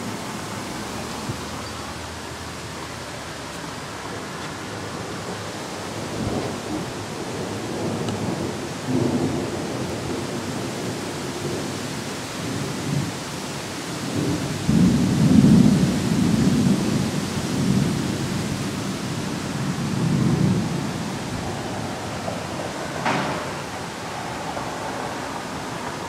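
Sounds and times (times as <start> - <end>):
thunder rumbling: 4.6 - 13.2, 14.0 - 26.0.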